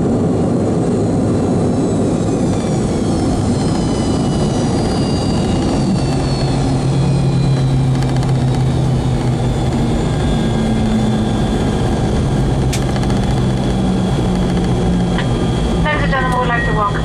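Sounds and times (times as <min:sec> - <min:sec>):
jet engines whining: 0:00.0 - 0:17.0
low cabin hum and rumble: 0:00.0 - 0:17.0.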